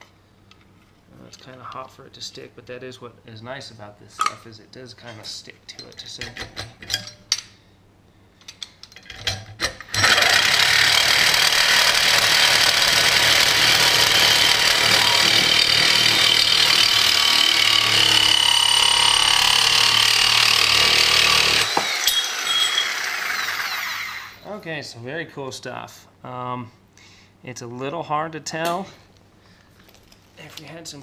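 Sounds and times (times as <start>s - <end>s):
reciprocating saw cutting steel: 10.0s - 24.4s.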